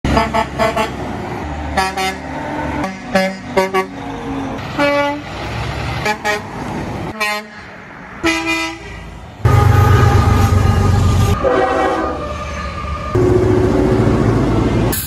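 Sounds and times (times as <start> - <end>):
truck engine and road noise: 0.0 - 15.0
locomotive horn: 0.1 - 1.0, 1.7 - 5.4, 6.0 - 6.5, 7.1 - 14.3
truck horn blasts: 0.1 - 1.0, 1.7 - 4.0, 4.6 - 5.3, 6.0 - 6.5, 7.1 - 12.6
train rumbling past: 0.1 - 15.0.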